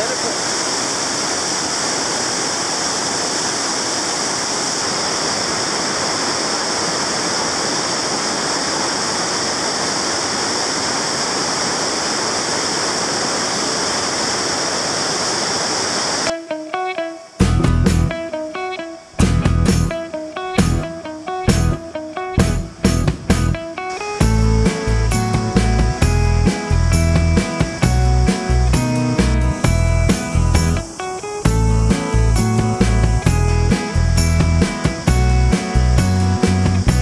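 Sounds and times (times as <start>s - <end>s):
waterfall rushing: 0.0s - 16.6s, 18.1s - 37.0s
plucked guitar music: 16.3s - 37.0s.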